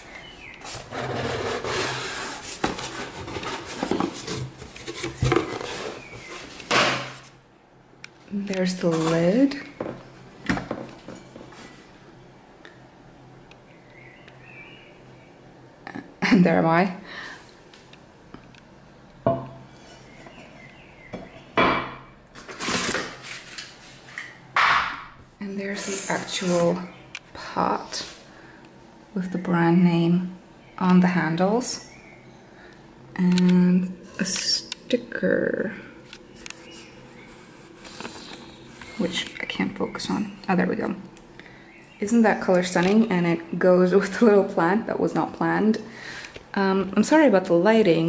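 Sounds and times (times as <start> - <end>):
cardboard scraping and rustling: 0.7 - 7.3.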